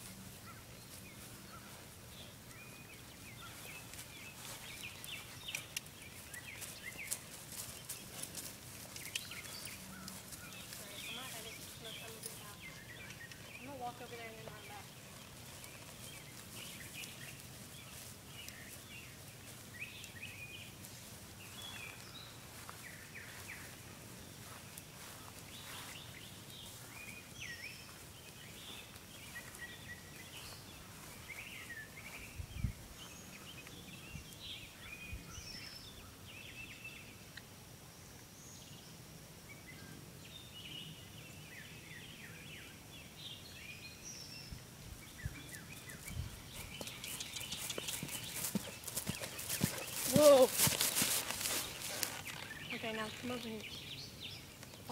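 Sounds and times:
outdoor background hiss: 0:00.0 - 0:54.9
birds chirping and whistling: 0:00.4 - 0:19.1, 0:41.5 - 0:54.9.

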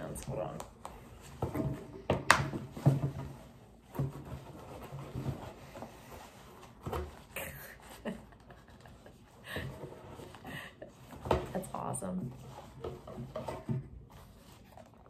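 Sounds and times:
soft laughter: 0:07.4 - 0:11.1.

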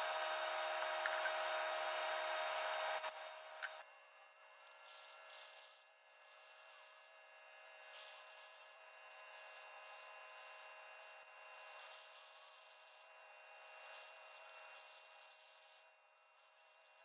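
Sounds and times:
arc cutting torch hissing: 0:00.0 - 0:03.8, 0:07.8 - 0:08.8, 0:13.7 - 0:17.0
faint machine hum: 0:00.0 - 0:06.8.

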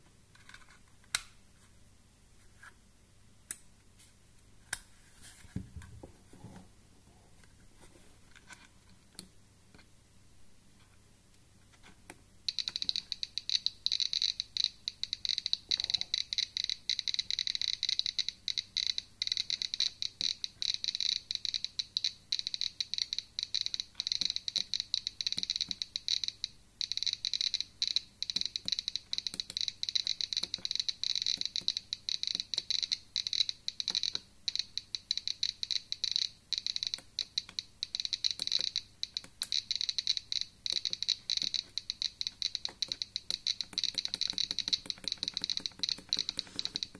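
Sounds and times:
geiger counter clicking rapidly: 0:12.5 - 0:46.9.

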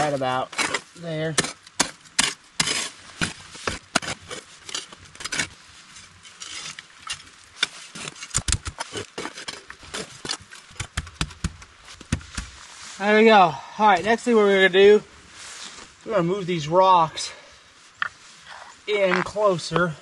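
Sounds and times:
shovel scraping in wet ash: 0:00.0 - 0:10.7.

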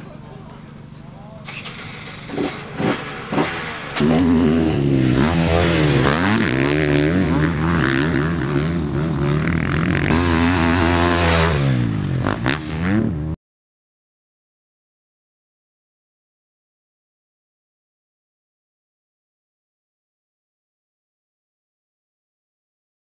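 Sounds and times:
dirt bike engine revving: 0:01.4 - 0:13.4.

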